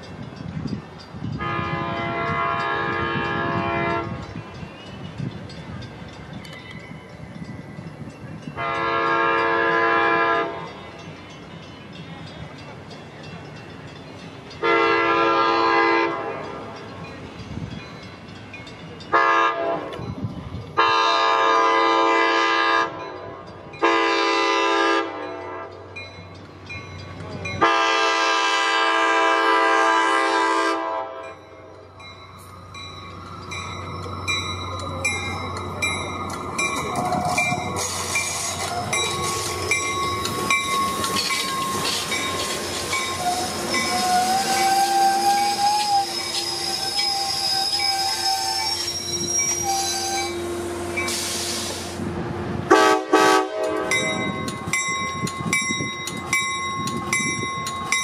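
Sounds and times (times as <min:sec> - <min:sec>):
train air horn blasts: 0:01.4 - 0:04.2, 0:08.6 - 0:10.7, 0:14.6 - 0:16.6, 0:19.1 - 0:20.0, 0:20.8 - 0:23.0, 0:23.8 - 0:25.8, 0:27.6 - 0:31.4, 0:43.1 - 0:52.1, 0:52.7 - 0:54.3
train wheels clattering: 0:32.0 - 0:52.0.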